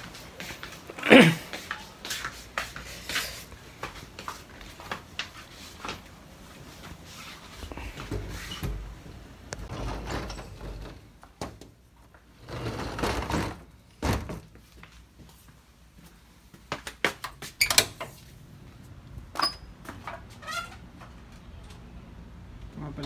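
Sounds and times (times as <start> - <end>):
door opening and shutting: 8.0 - 11.7, 17.6 - 18.2, 19.3 - 20.9.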